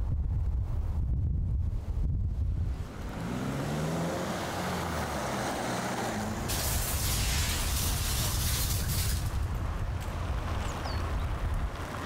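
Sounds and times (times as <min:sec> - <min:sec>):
strong wind rushing: 0:00.0 - 0:04.0.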